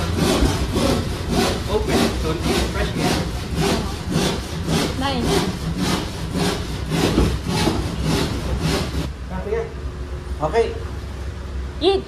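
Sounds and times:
hand saw cutting plywood: 0.0s - 9.1s.

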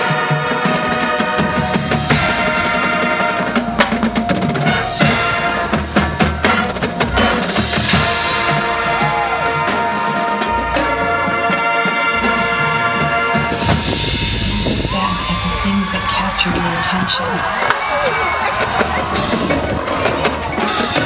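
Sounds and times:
marching band playing: 0.0s - 21.0s
snare and bass drum strikes: 13.6s - 15.1s.

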